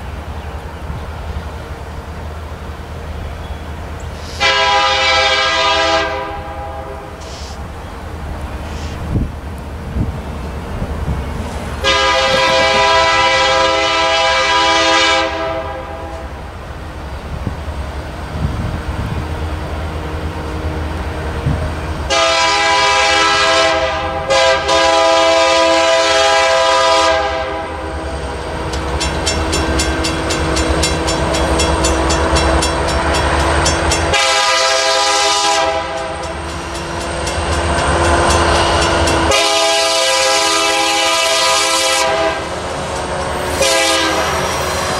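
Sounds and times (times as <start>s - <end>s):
diesel engines rumbling: 0.0s - 44.9s
diesel locomotive horn blasts: 4.2s - 7.6s, 11.8s - 16.4s, 19.0s - 36.7s, 37.3s - 44.9s.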